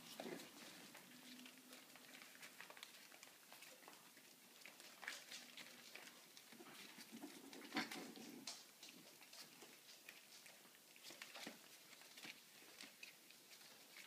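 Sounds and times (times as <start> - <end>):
puppies' paws scrabbling on newspaper: 0.0 - 14.0.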